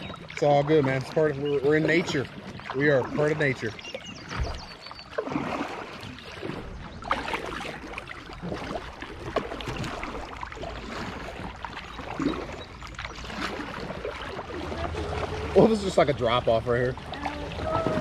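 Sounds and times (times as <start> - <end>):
kayak paddles splashing: 0.0 - 18.0.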